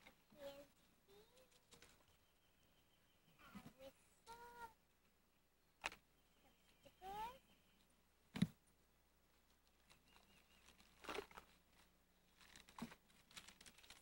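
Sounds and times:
rustling and crinkling of wrappers: 1.2 - 2.1, 9.6 - 14.0.

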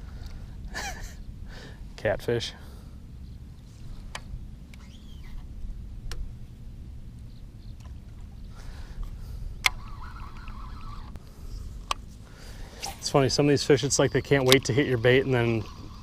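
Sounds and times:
sharp clicks: 9.6 - 11.2
water rumbling: 12.6 - 16.0.

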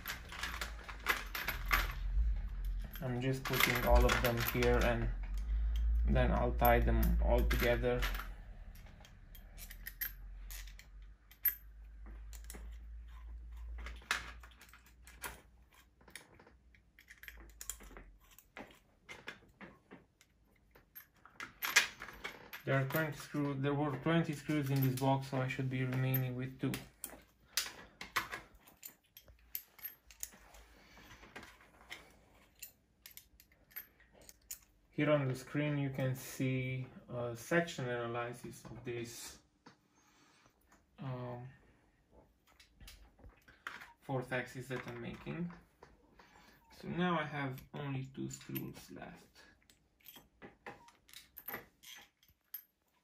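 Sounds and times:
metallic clicks of screws: 0.0 - 19.4, 26.9 - 30.6, 31.4 - 34.8.

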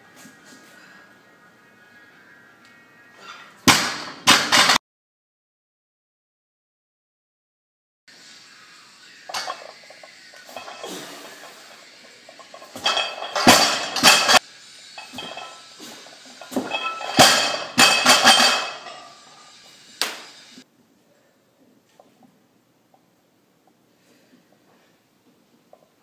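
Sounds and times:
iron plates clanking on barbell: 16.6 - 19.0.

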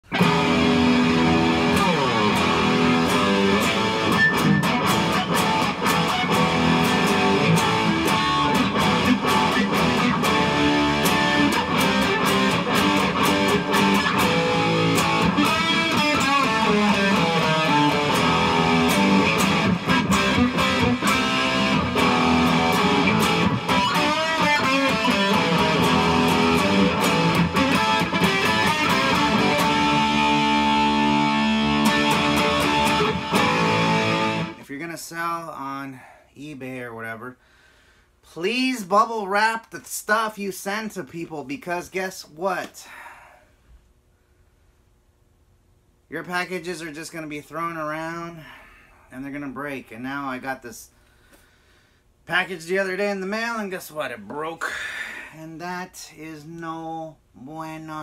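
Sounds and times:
electric guitar strumming and picking: 0.0 - 34.6.

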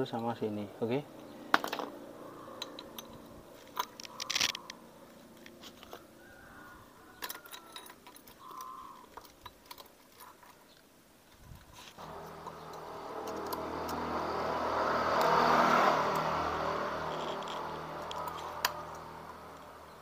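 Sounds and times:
metal clicks and clinks: 2.6 - 4.8, 7.2 - 10.6, 17.1 - 19.7.

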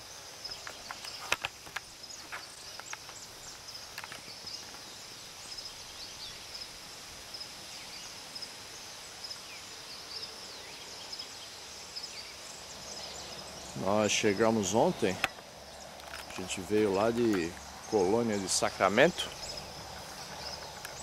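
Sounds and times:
repeating high insect chirp: 0.0 - 21.0
bird chirps: 9.2 - 21.0.

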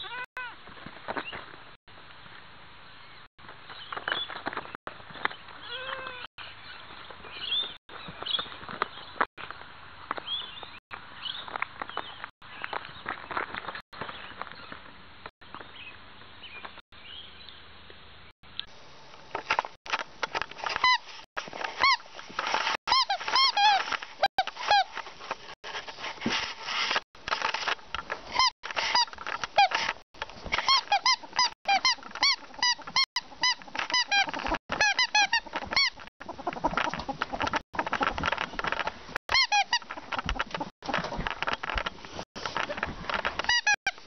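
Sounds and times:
ferrets squeaking: 21.8 - 25.0, 28.3 - 41.9, 42.5 - 44.0.

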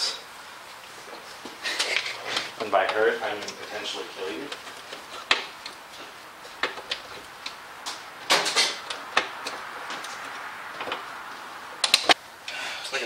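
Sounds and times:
scraping rustle: 0.8 - 12.2
small clicks and knocks: 4.5 - 11.1.

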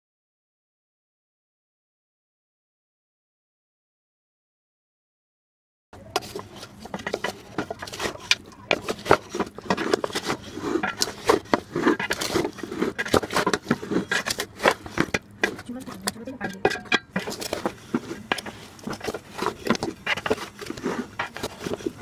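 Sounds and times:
wooden spatula scraping metal pot: 6.0 - 22.0.

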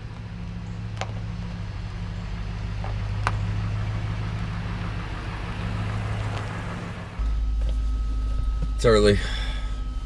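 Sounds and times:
pickup truck engine running: 0.0 - 7.9.

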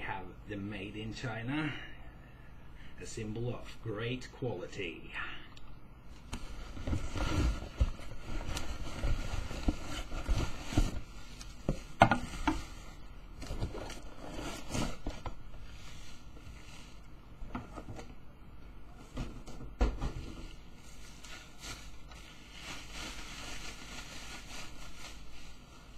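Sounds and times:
bubble wrap and cardboard rustling: 6.1 - 17.0, 20.5 - 25.9.

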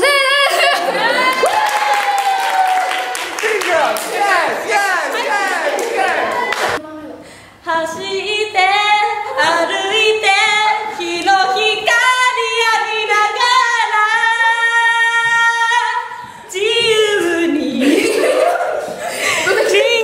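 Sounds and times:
woman singing unaccompanied: 6.8 - 18.0, 19.5 - 20.0.

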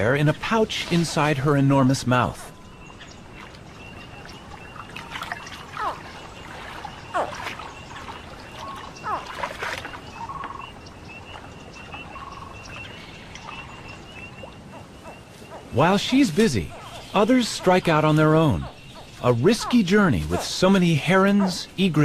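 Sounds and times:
baby alligators chirping: 3.8 - 21.7.

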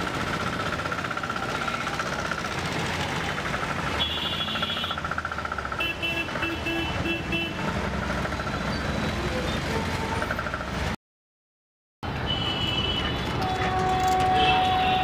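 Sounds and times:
busy street traffic: 0.0 - 11.0, 12.0 - 15.0
short horn beeps: 12.3 - 15.0.

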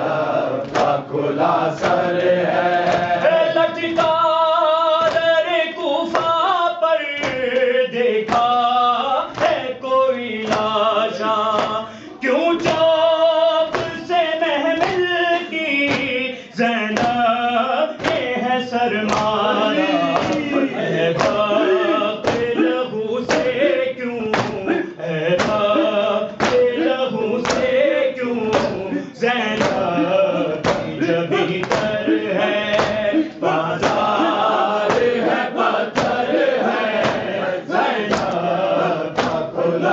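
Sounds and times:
voices chanting a wailing melody: 0.0 - 6.3, 17.4 - 39.9
rhythmic hand strikes: 0.0 - 39.9.

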